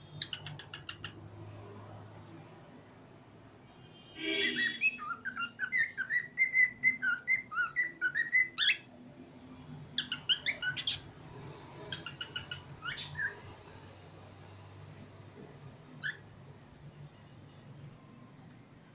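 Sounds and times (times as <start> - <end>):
cockatiel whistling: 4.4 - 8.8.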